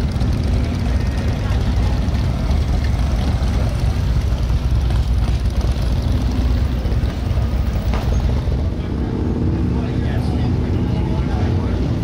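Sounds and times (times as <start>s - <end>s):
motorcycle engines rumbling: 0.0s - 12.0s.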